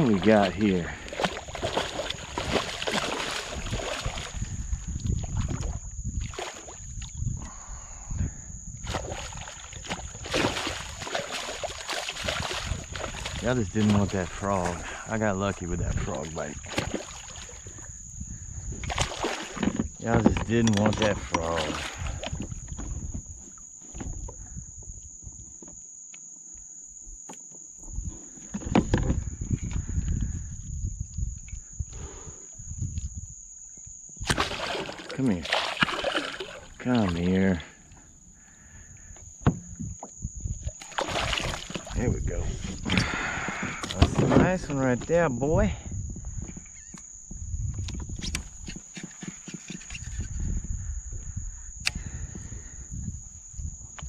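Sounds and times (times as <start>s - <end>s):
wind rumbling on microphone: 0.0s - 25.6s, 27.8s - 54.0s
insects droning: 0.0s - 54.0s
fish thrashing and splashing: 1.0s - 7.0s, 8.8s - 14.7s, 16.6s - 17.8s, 18.8s - 20.0s, 34.3s - 37.3s, 40.7s - 42.0s
knocks against kayak: 39.4s - 40.1s.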